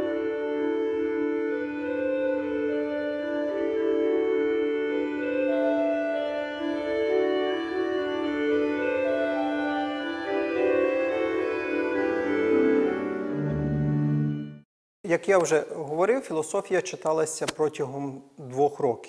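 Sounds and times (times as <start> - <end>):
organ sustained chords: 0.0 - 14.6.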